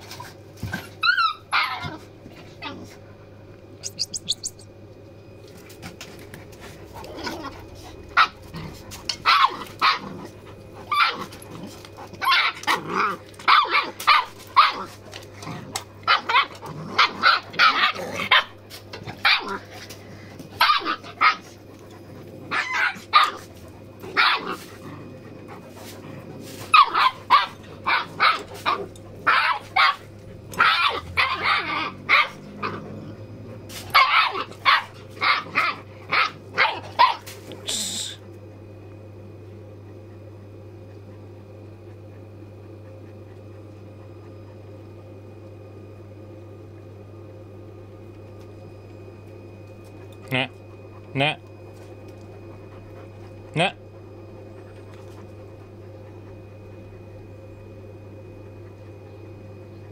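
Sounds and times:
puppies yapping: 1.0 - 2.0, 3.8 - 4.7, 22.5 - 24.8, 26.7 - 32.8, 33.9 - 37.3.

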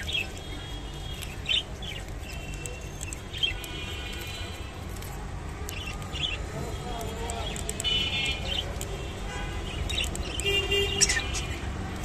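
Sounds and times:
budgerigars chirping: 0.0 - 4.6, 5.7 - 8.8, 9.7 - 11.7
budgerigars warbling chatter: 9.8 - 11.7.

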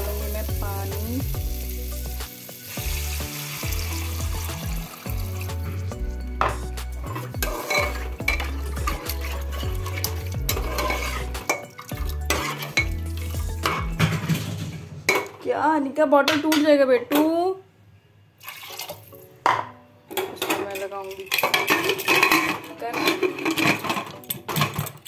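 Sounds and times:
background music with bass: 0.0 - 14.3
food sizzling: 0.0 - 15.4
spatula clinking against pot: 6.4 - 13.0
metal spatula scraping a pot: 6.6 - 14.2, 20.7 - 24.8.

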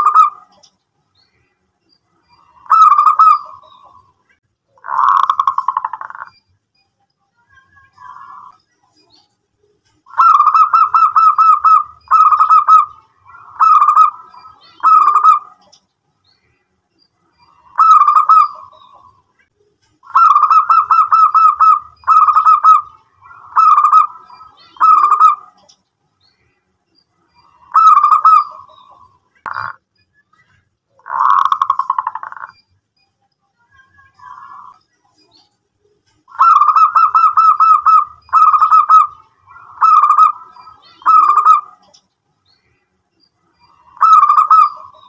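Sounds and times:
dove cooing: 0.0 - 0.6, 2.5 - 4.0, 4.8 - 6.3, 10.1 - 15.7, 17.5 - 19.2, 20.0 - 25.7, 27.4 - 29.8, 31.0 - 32.5, 36.3 - 41.9, 43.7 - 45.0.

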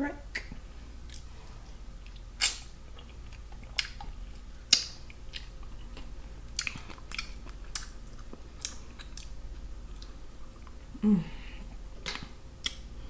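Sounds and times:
chewing: 0.4 - 10.9.

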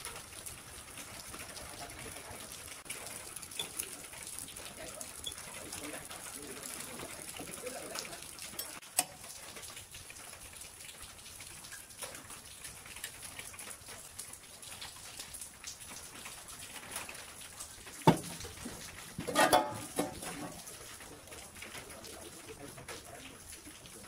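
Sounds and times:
metal cover clanking: 18.0 - 18.4, 19.2 - 20.6.

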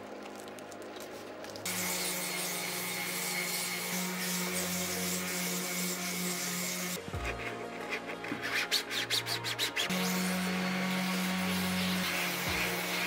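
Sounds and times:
orbital sander running: 1.7 - 7.5, 9.4 - 13.0.

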